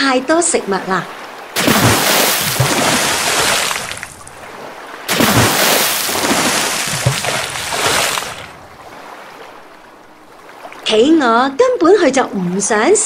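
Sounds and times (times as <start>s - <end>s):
water splashing: 1.2s - 10.8s.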